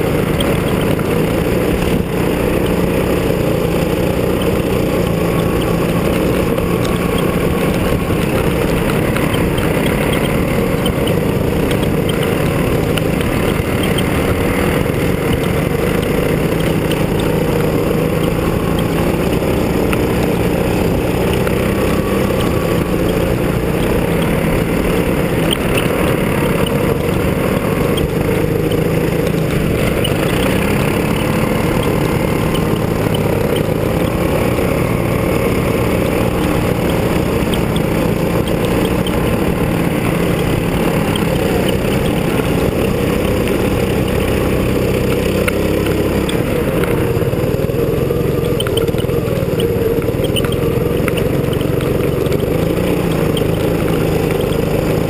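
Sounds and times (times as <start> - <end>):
go-kart engine: 0.0 - 55.0
steady rushing noise: 0.0 - 55.0.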